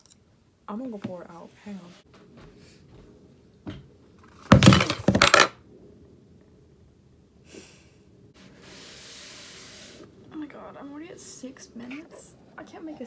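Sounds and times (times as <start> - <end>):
clatter of knocks: 3.7 - 5.5
cloth wiping a tabletop: 8.4 - 10.1.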